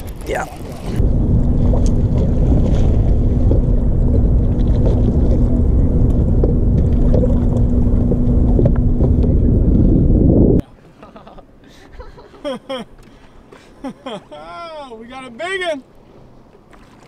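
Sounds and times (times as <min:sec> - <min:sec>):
wind buffeting microphone: 0:00.0 - 0:10.6
faint steady hum: 0:01.0 - 0:14.6.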